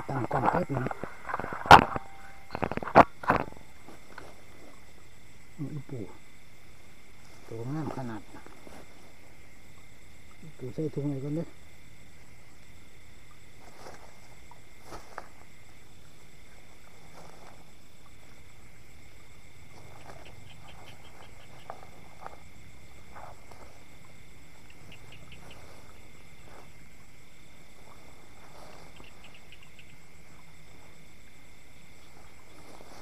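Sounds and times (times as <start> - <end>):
insects calling: 0.0 - 33.0.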